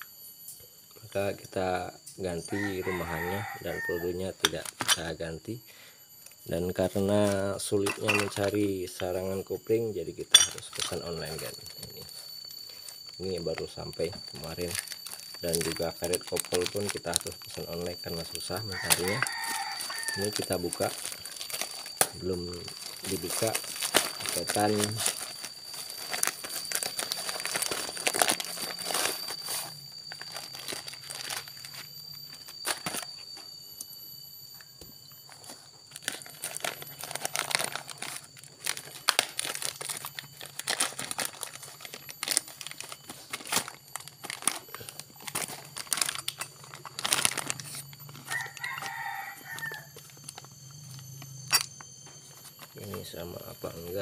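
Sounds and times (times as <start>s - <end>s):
rooster crowing: 2.3s - 4.6s, 17.9s - 21.3s, 47.8s - 50.3s
plastic mailer crinkling and tearing: 2.4s - 5.2s, 10.6s - 33.2s, 35.3s - 54.0s.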